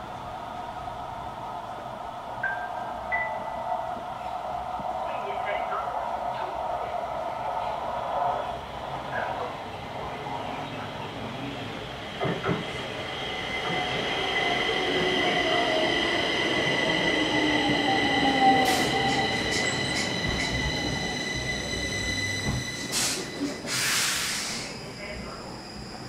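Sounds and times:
metro train slowing: 0.0 - 26.0
high brake squeal: 17.8 - 26.0
short hiss: 23.0 - 24.7.

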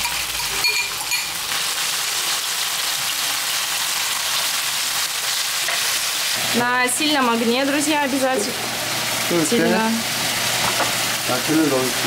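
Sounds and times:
metal clink: 0.0 - 1.3
octopus sizzling in hot oil: 0.0 - 12.0.

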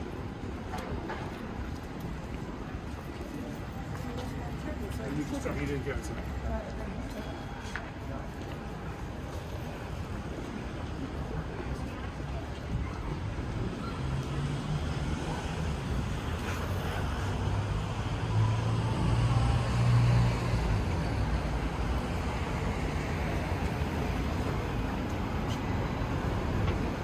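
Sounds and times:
street traffic: 0.0 - 27.0.

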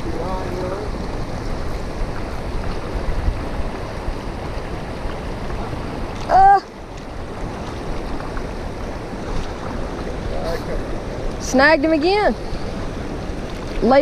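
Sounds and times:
stream rushing over rocks: 0.0 - 14.0
person exclaiming: 6.3 - 6.7.

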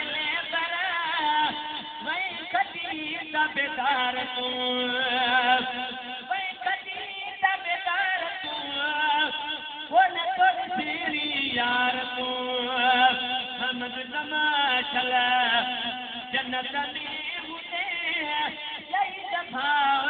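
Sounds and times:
man singing into microphone: 0.0 - 20.0.

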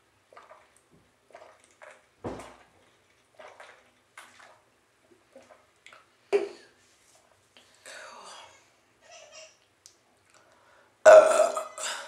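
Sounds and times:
person gulping beer: 0.3 - 4.6, 5.2 - 6.7, 11.1 - 12.0
beer sloshing in can: 0.3 - 6.0.

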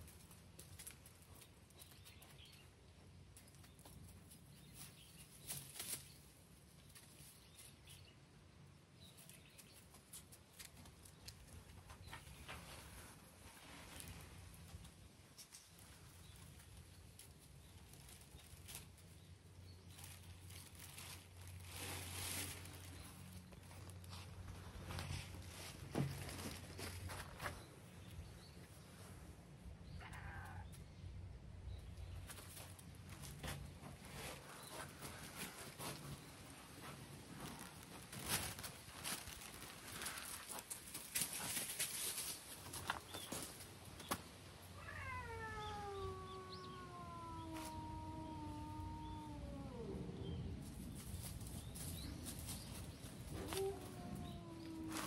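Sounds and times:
rustling in dry leaves: 0.0 - 2.7, 3.3 - 8.1, 9.0 - 29.3, 31.7 - 55.0
cat meowing: 30.0 - 30.7, 44.8 - 50.0, 53.4 - 55.0.

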